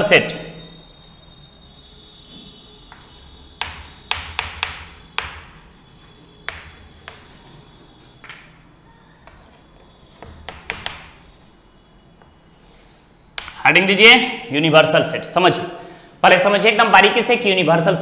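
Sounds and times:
chalk tapping on chalkboard: 0:02.9 - 0:07.6, 0:10.1 - 0:11.2, 0:13.4 - 0:13.6.

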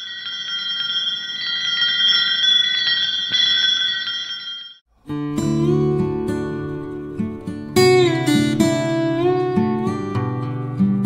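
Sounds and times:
bell-like chimes ringing: 0:00.0 - 0:04.9
plucked acoustic guitar music: 0:05.1 - 0:11.0.

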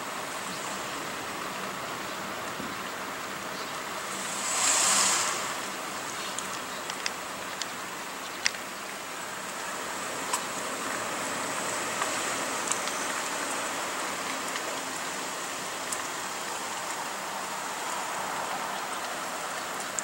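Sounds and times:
steady outdoor hiss: 0:00.0 - 0:20.0
faint sharp clicks: 0:05.0 - 0:08.7, 0:10.3 - 0:10.5, 0:12.0 - 0:13.6, 0:15.8 - 0:16.1, 0:18.9 - 0:20.0.

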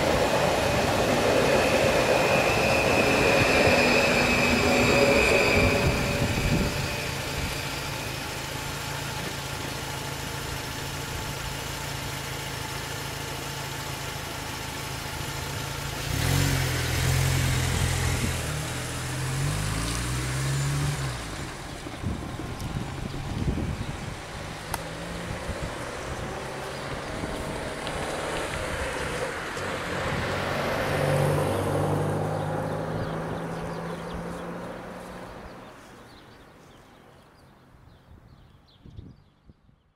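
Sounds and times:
car engine idling: 0:00.0 - 0:30.2
car pulling away: 0:00.0 - 0:36.7.

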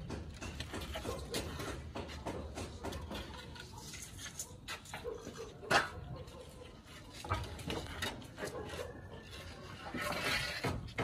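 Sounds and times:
wooden planks knocking: 0:00.0 - 0:03.5.

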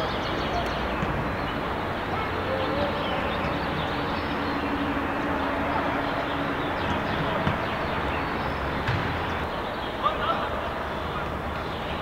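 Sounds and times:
open-air noise and rumble: 0:00.0 - 0:12.0.

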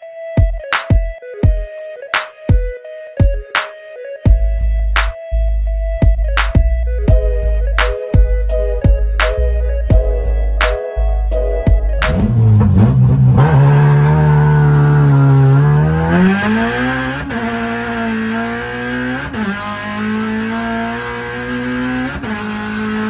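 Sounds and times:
car engine accelerating through gears: 0:11.4 - 0:23.0.

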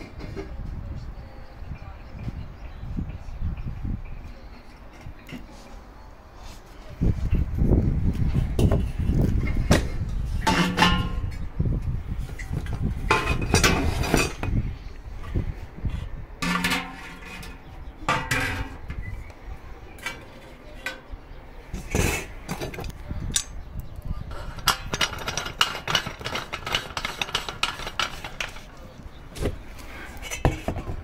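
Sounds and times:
metal parts clinking and knocking: 0:24.5 - 0:28.7.

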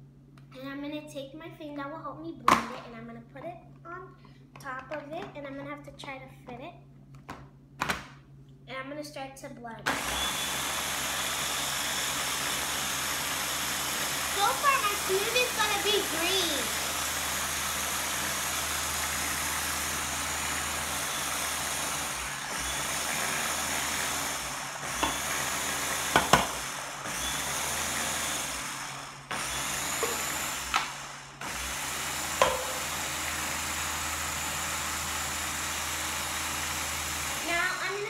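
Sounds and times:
blender motor whirring: 0:09.9 - 0:38.0
blender jar and lid knocks: 0:26.1 - 0:26.6, 0:30.0 - 0:30.9, 0:32.4 - 0:32.9.

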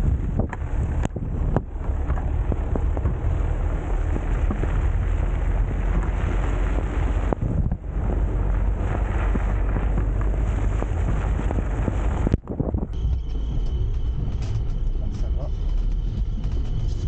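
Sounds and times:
tyres on snow: 0:00.0 - 0:12.4
wind noise on microphone: 0:00.0 - 0:17.0.

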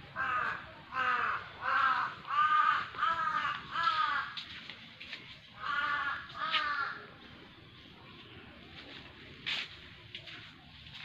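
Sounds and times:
crow cawing: 0:00.2 - 0:04.5, 0:05.6 - 0:07.1.

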